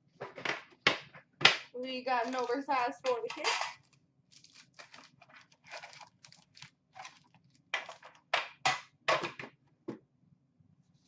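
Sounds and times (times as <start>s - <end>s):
foil packs crinkling: 2.1s - 3.0s, 3.7s - 8.3s.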